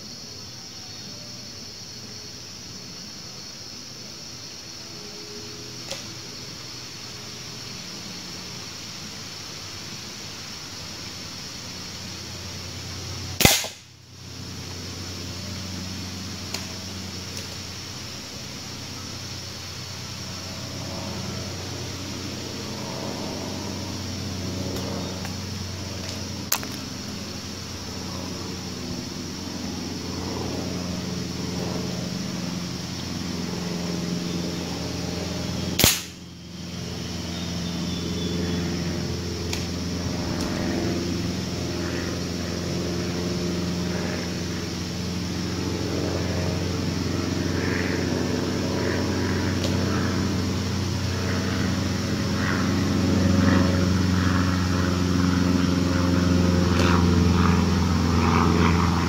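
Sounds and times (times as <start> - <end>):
low drone: 0.0 - 59.0
sharp gunshot: 13.4 - 13.9, 35.8 - 36.2.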